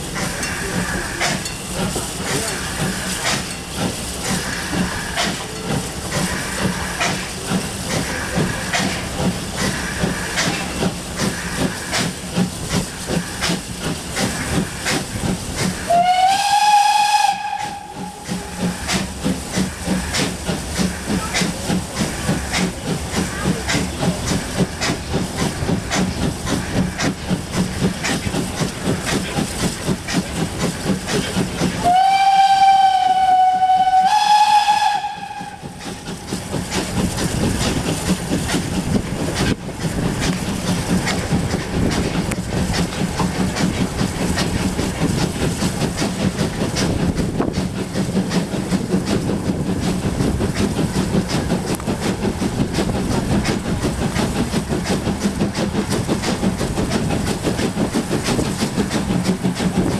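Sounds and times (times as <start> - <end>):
steam locomotive chuffing: 0.0 - 59.9
steam whistle blast: 15.9 - 18.2, 31.8 - 35.6.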